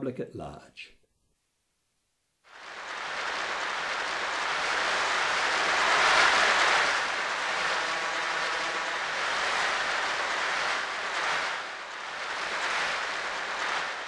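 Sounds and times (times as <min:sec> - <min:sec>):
audience applause: 0:02.5 - 0:14.0.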